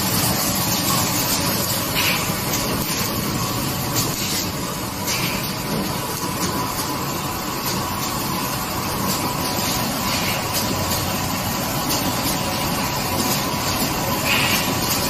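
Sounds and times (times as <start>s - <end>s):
screen printing machine drone: 0.0s - 15.0s.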